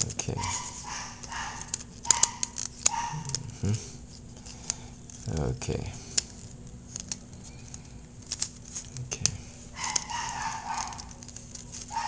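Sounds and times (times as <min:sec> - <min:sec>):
plastic toy parts clicking: 0:01.2 - 0:03.4, 0:06.2 - 0:11.9.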